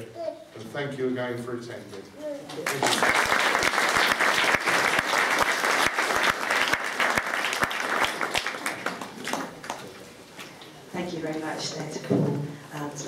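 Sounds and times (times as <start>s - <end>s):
audience applauding: 2.6s - 9.9s.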